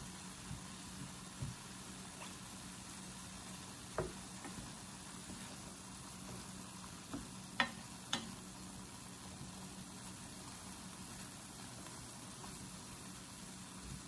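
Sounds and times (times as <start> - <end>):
food sizzling in a pan: 0.0 - 14.0
wooden spoon knocking on pan: 0.4 - 2.3, 3.8 - 5.5, 6.2 - 8.4.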